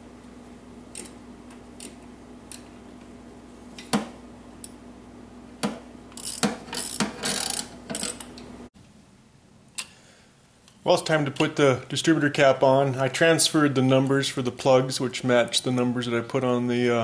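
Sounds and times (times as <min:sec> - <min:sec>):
steady low hum: 0:00.0 - 0:17.0
wrench metallic clicks and knocks: 0:05.6 - 0:08.4
wrench rasping strokes: 0:06.2 - 0:08.2.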